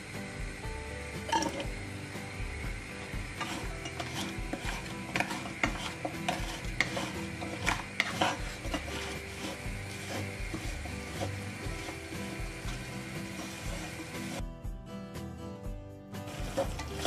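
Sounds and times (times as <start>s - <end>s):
spatula scraping a pan: 1.2s - 1.8s, 3.0s - 14.4s, 16.2s - 17.0s
lumps knocking against a pan: 1.3s - 1.7s, 3.3s - 12.9s.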